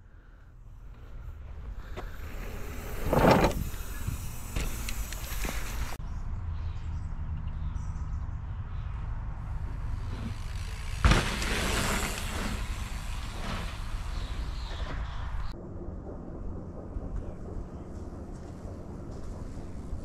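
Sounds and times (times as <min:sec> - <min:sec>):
wind rumble on microphone: 0:00.8 - 0:10.0, 0:12.0 - 0:20.0
bike landing with thud: 0:03.0 - 0:06.0, 0:10.9 - 0:15.4
tyres hissing over dirt: 0:10.0 - 0:14.8.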